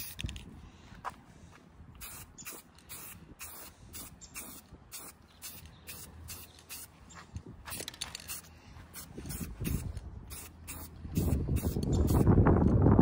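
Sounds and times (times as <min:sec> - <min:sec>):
spray paint can hissing: 0:00.0 - 0:00.4, 0:02.0 - 0:06.9, 0:07.6 - 0:12.4
wind rumble on microphone: 0:08.7 - 0:13.0.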